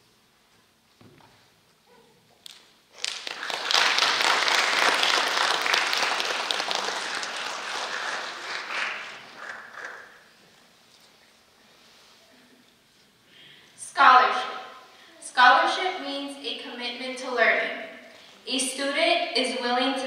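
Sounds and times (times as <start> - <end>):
audience applauding: 3.0 - 10.4.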